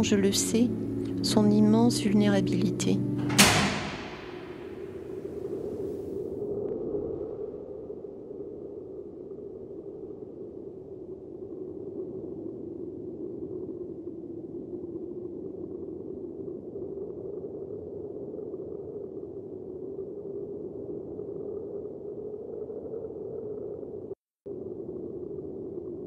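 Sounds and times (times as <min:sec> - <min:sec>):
steady low drone: 0:00.0 - 0:06.4.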